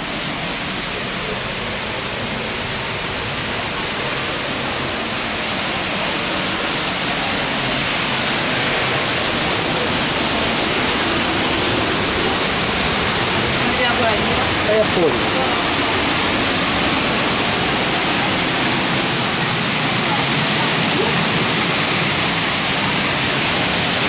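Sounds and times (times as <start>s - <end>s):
waterfall rushing: 0.0s - 24.0s.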